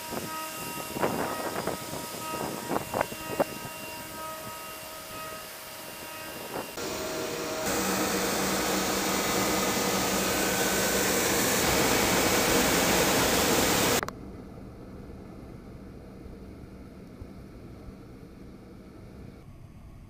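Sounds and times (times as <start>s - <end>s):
dryer machine rushing and humming: 0.0s - 14.1s.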